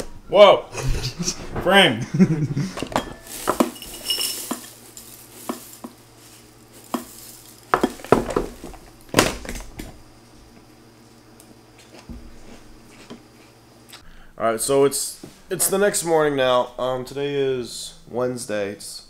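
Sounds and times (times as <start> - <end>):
low steady hum: 0.0 - 19.0
cereal pouring into bowl: 3.2 - 5.9, 6.6 - 7.8.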